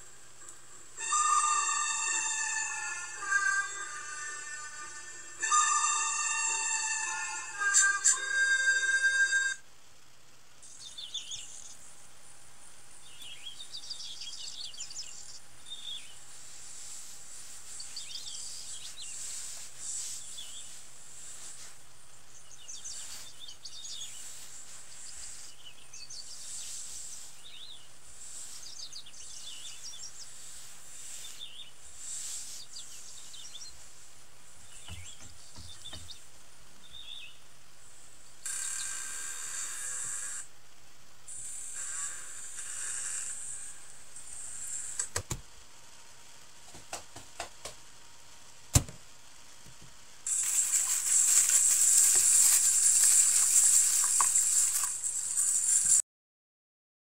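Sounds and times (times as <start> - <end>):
insects hissing: 0.0 - 9.6, 15.7 - 36.3, 36.9 - 40.5, 41.3 - 45.1, 50.2 - 56.0
short high chirps: 1.0 - 9.6.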